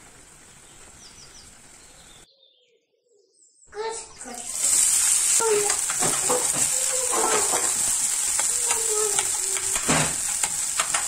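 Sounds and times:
onions sizzling in hot oil: 0.0s - 2.2s, 4.3s - 11.0s
spatula scraping pan: 4.5s - 11.0s.

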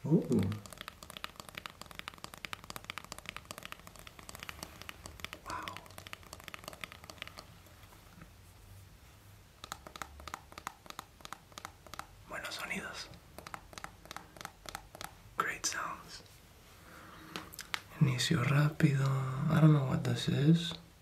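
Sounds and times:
fingernails tapping on phone: 0.3s - 7.5s, 9.6s - 12.1s, 13.3s - 15.2s.

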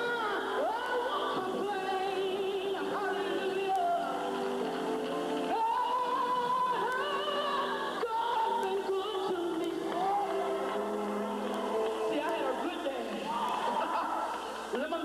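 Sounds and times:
woman singing gospel: 0.0s - 15.0s.

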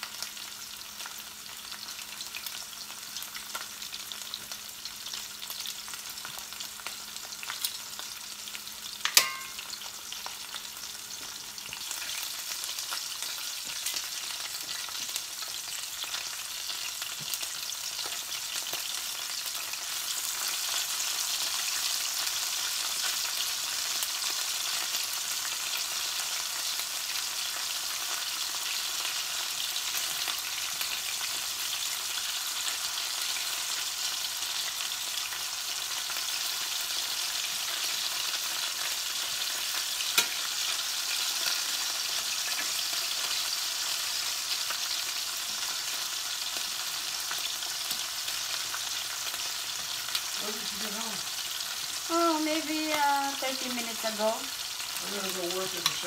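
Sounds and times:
meat sizzling in oil: 0.0s - 56.0s
metal tongs turning meat: 9.0s - 9.7s, 40.1s - 40.5s, 55.2s - 56.0s.

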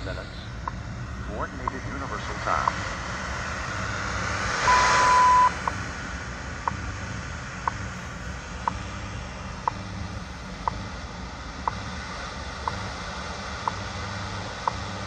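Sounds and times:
radio static and hum: 0.0s - 6.8s
time signal beep: 4.6s - 5.8s.

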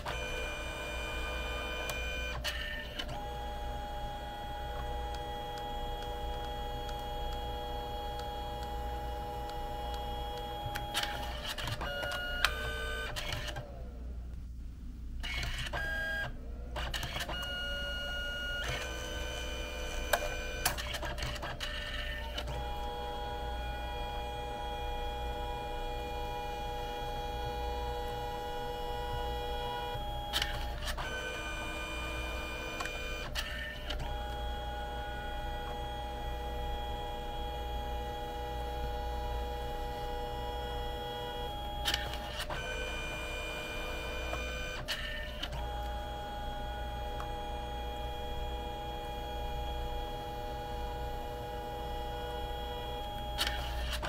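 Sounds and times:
printer motor whine: 0.0s - 14.0s, 15.2s - 54.0s
printer clicks: 1.8s - 13.7s, 18.5s - 22.7s, 27.9s - 31.1s.

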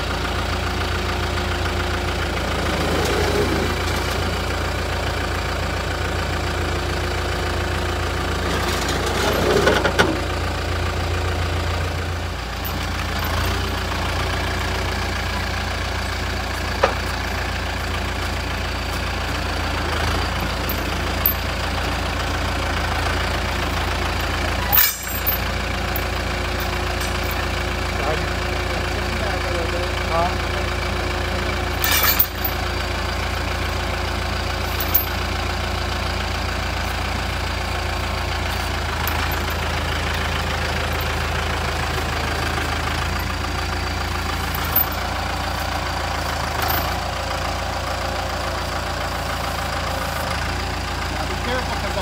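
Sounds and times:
forklift engine idling: 0.0s - 52.0s
metal chain clinks: 20.4s - 21.5s, 24.6s - 26.0s, 31.8s - 32.6s, 34.6s - 35.2s, 44.4s - 45.1s, 46.6s - 47.0s.

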